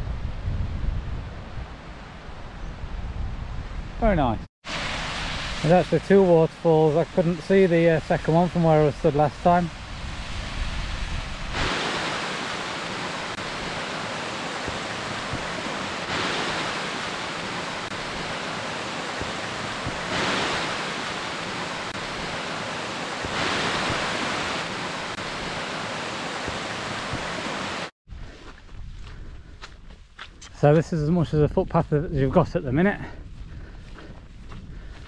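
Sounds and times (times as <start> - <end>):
waterfalls rushing: 4.7 - 27.9.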